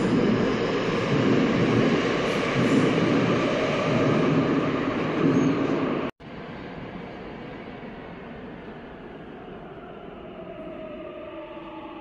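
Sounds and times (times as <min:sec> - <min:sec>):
subway train rumbling past: 0:00.0 - 0:12.0.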